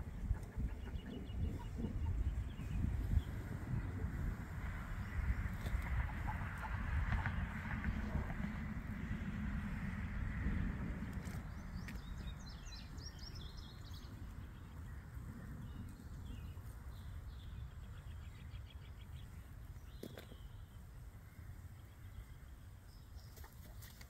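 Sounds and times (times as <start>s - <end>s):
birds chirping: 0.0s - 8.5s, 11.0s - 24.0s
wind noise on microphone: 0.0s - 18.4s.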